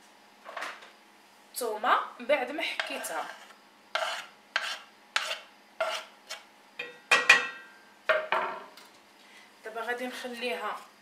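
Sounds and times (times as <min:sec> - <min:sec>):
wooden spoon scraping cutting board: 0:02.8 - 0:06.5.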